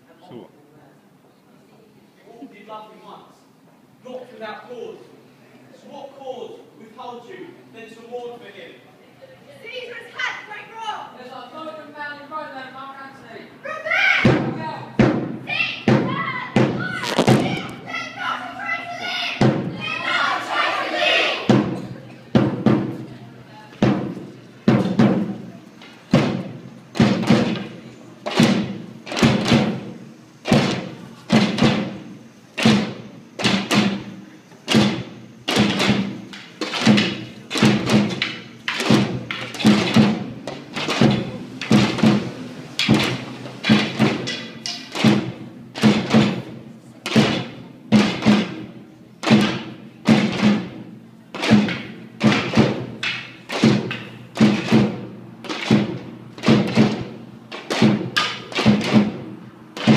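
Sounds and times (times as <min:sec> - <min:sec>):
drum beaten in slow rhythm: 0:21.4 - 0:23.0, 0:23.8 - 0:59.9.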